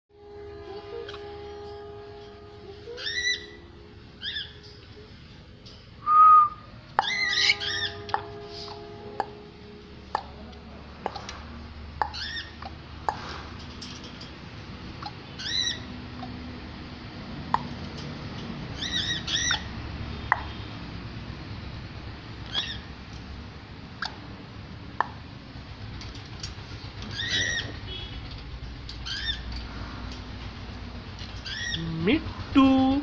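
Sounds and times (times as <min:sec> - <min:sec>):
parrot chirping calls: 0:03.0 - 0:04.6, 0:07.0 - 0:09.3, 0:12.0 - 0:13.2, 0:15.0 - 0:16.4, 0:18.7 - 0:20.6, 0:22.4 - 0:23.0, 0:24.0 - 0:24.3, 0:27.1 - 0:27.9, 0:29.0 - 0:29.5, 0:31.3 - 0:32.0.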